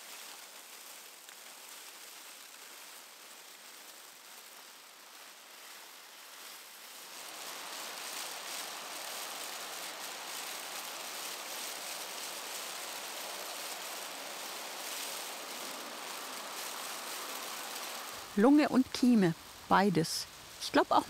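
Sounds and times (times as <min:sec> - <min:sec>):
rushing outdoor ambience: 0:07.0 - 0:21.0.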